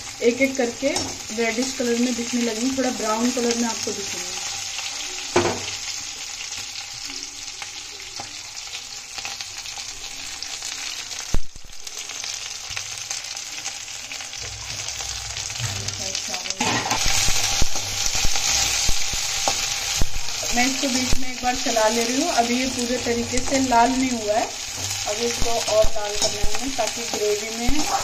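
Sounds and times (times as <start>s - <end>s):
onions sizzling in hot oil: 0.0s - 28.0s
metal spatula scraping pan: 16.6s - 19.7s.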